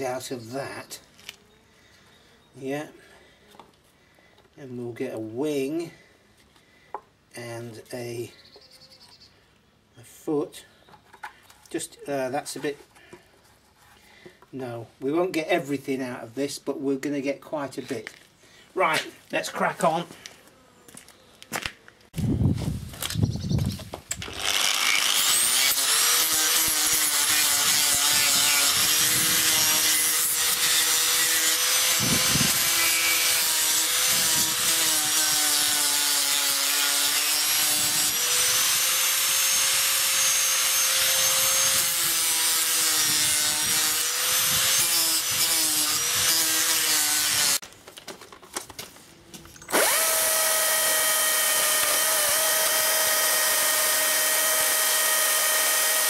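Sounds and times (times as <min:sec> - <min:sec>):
angle grinder sanding wood: 0:24.2 - 0:47.6, 0:49.7 - 0:56.0
chainsaw running at high speed: 0:24.3 - 0:47.6, 0:49.7 - 0:56.0.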